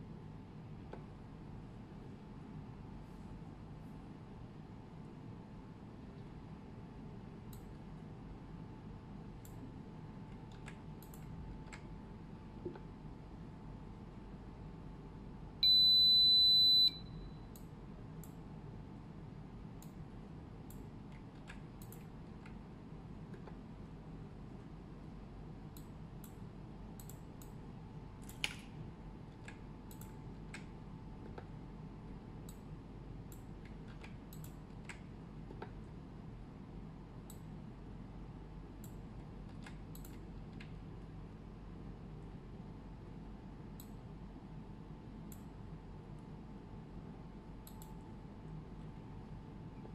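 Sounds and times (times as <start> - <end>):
steady low hum: 0.0 - 49.9
high-pitched motor beep: 15.6 - 17.4
mouse and keyboard clicks: 28.2 - 31.5.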